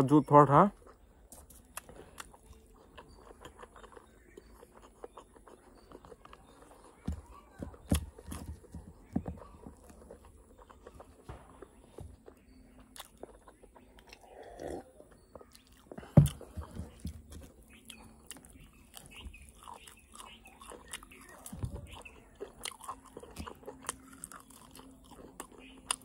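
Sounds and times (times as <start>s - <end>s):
chewing with wet clicks: 0.7s - 26.0s.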